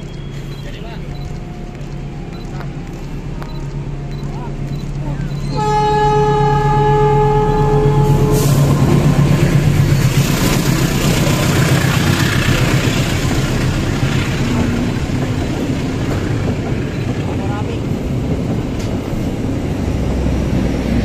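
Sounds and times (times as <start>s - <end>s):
locomotive engine drone: 0.0s - 21.0s
train coaches rumbling on rails: 0.0s - 21.0s
locomotive horn: 5.5s - 8.8s.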